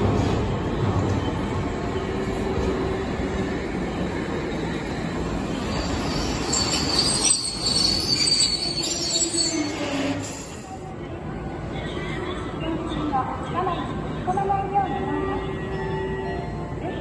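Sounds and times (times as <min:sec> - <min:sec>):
streetcar rumbling: 0:00.0 - 0:17.0
steel wheels squealing on rails: 0:04.4 - 0:10.8.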